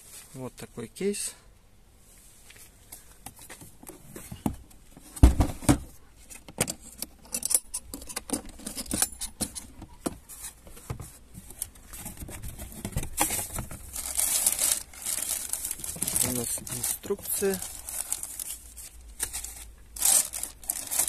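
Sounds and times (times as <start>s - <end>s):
heavy thumps: 4.4s - 5.9s
clicking and rattling contents: 11.6s - 18.6s
plastic bag crinkling: 13.4s - 21.0s.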